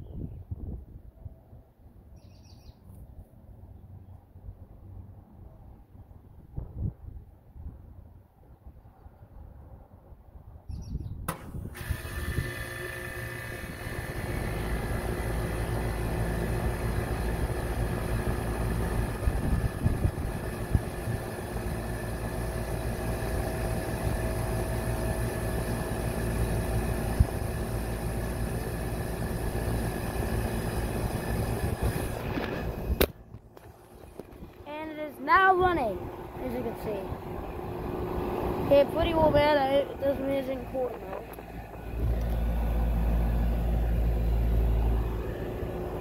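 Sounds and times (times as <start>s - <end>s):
air conditioner humming: 34.2s - 41.9s.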